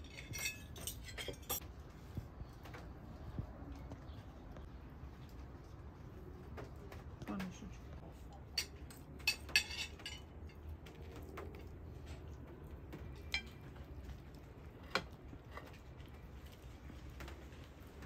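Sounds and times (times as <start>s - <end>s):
cutlery clinking on plates: 0.0s - 1.6s, 8.6s - 10.6s.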